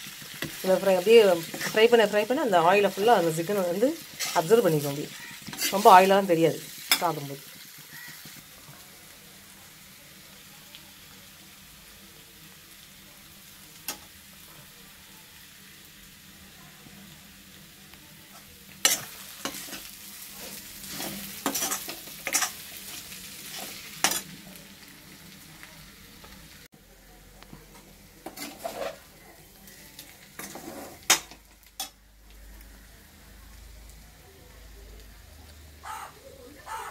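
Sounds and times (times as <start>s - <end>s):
food sizzling in a pan: 0.0s - 36.9s
spatula scraping and knocking pan: 4.0s - 5.9s, 18.8s - 22.6s, 28.2s - 29.1s, 30.4s - 31.9s.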